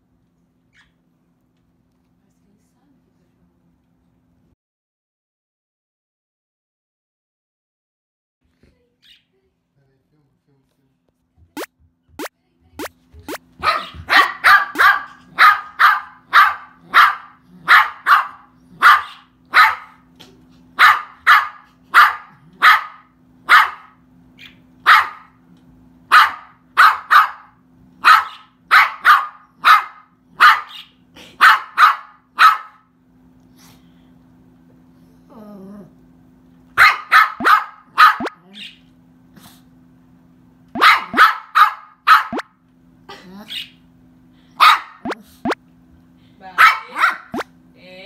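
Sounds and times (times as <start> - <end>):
small dog barking sharply: 13.6 - 20.0, 20.8 - 24.0, 24.8 - 25.3, 26.1 - 30.8, 31.4 - 32.8, 36.8 - 38.4, 40.8 - 42.4, 44.6 - 45.2, 46.6 - 47.4.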